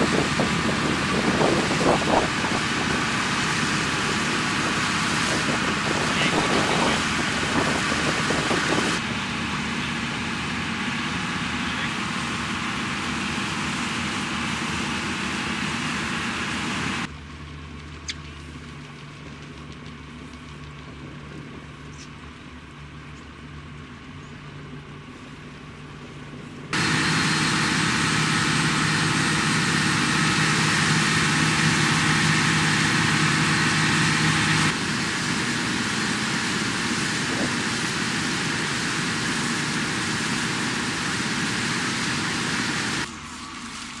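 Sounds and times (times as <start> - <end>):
rush of wind and water: 0.0 - 9.0
boat engine running: 0.0 - 17.2, 20.2 - 43.1.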